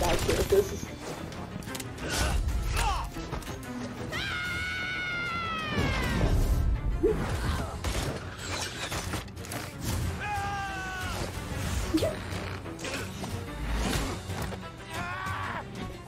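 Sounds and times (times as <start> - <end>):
action music: 0.0 - 16.0.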